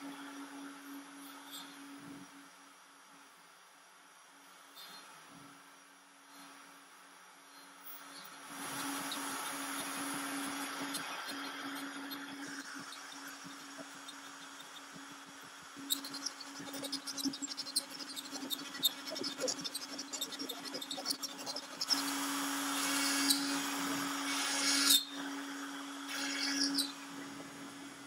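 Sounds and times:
router spindle humming: 8.1s - 28.0s
router bit cutting wood: 8.5s - 27.8s.

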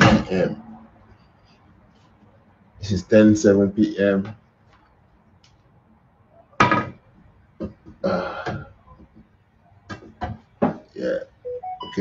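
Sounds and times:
man's wordless vocal sounds: 8.0s - 8.9s.

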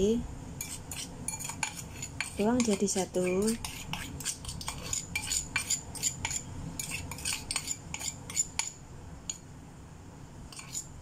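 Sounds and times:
whisk clinking in metal bowl: 0.6s - 8.7s.

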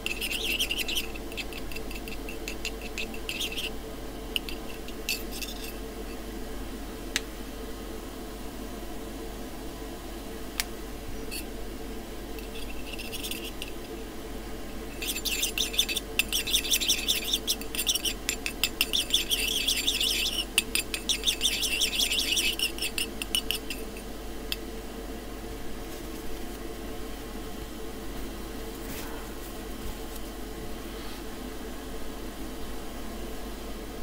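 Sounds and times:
metal rod scraping metal cup: 0.0s - 3.8s, 4.4s - 5.8s, 12.4s - 13.9s, 15.0s - 24.6s
steady low hum: 0.0s - 34.0s.

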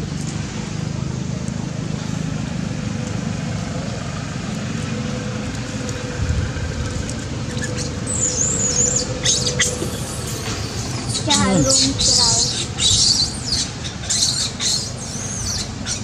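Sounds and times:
steady background noise: 0.0s - 16.0s
monkeys squeaking: 7.4s - 16.0s.

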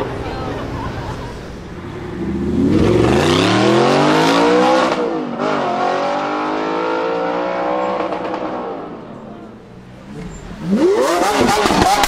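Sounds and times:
sports car accelerating hard: 2.0s - 9.0s.

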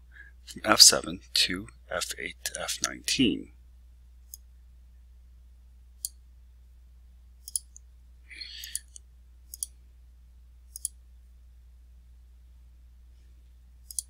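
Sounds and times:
computer mouse clicking: 7.4s - 7.8s, 8.6s - 9.7s, 10.7s - 11.0s.

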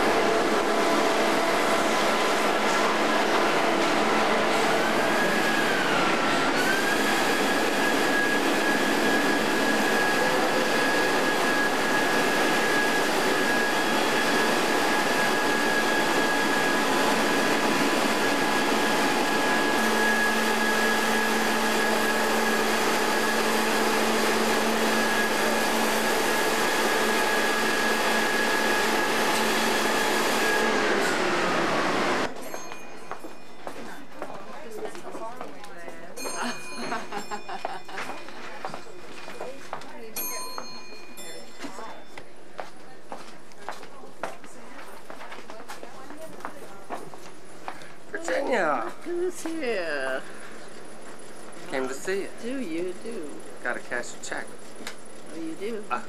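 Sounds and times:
truck engine and hydraulic hoist whine: 0.0s - 32.9s.

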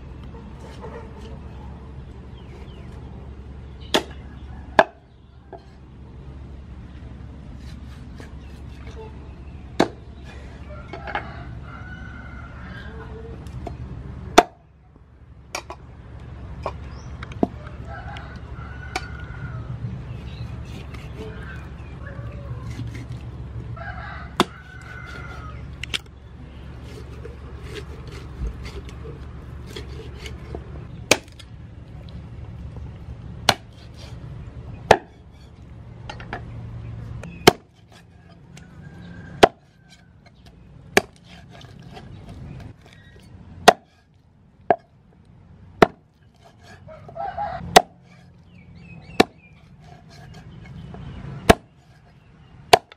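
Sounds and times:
cleaver chopping on wooden board: 24.4s - 25.2s, 33.5s - 33.9s, 34.9s - 35.2s, 37.4s - 38.0s, 39.4s - 39.7s, 40.9s - 42.9s, 43.6s - 44.0s, 45.8s - 46.8s, 47.7s - 48.0s, 49.1s - 51.7s.

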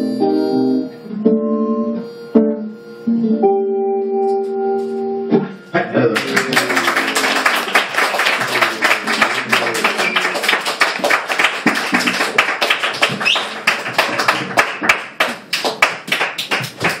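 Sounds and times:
audience clapping: 6.2s - 17.0s.

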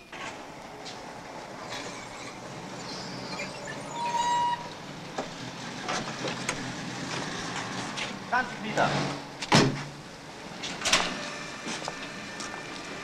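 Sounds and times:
street traffic: 0.0s - 13.0s
car horn toot: 3.9s - 4.8s.

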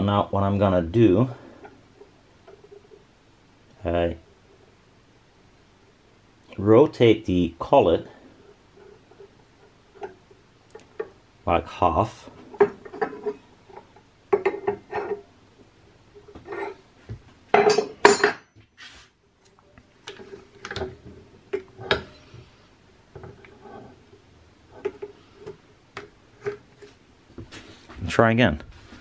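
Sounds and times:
metallic clinks and knocks: 17.5s - 18.6s.

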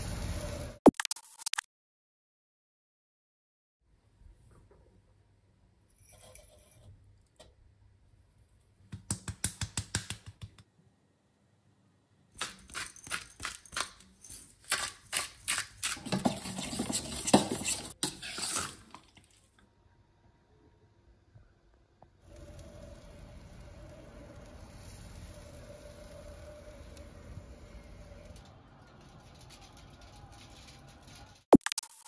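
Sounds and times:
spoon clinking and scraping in bowl: 6.0s - 7.0s, 12.4s - 19.1s.

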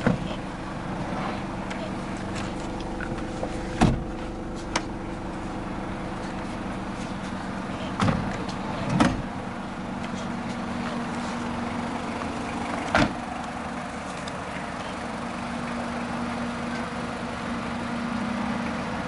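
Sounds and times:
diesel engine idling: 0.0s - 19.0s
knocks and thumps: 3.1s - 4.1s.

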